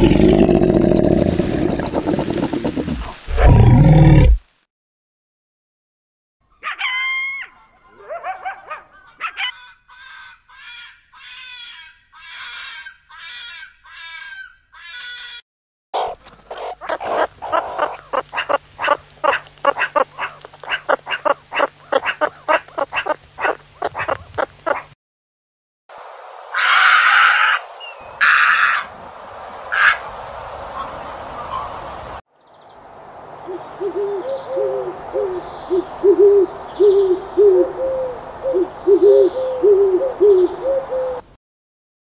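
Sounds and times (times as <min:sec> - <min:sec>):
animal calls: 0:16.0 - 0:25.0.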